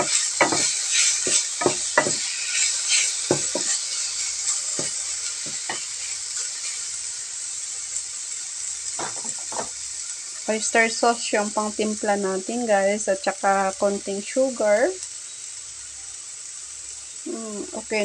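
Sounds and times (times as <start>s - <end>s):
wooden spatula scraping a pan: 0.0s - 6.0s
mushrooms sizzling in oil: 0.0s - 18.0s.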